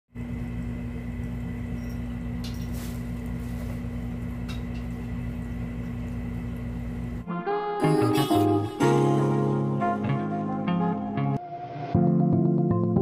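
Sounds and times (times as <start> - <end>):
water fountain pump hum: 0.2 - 7.2.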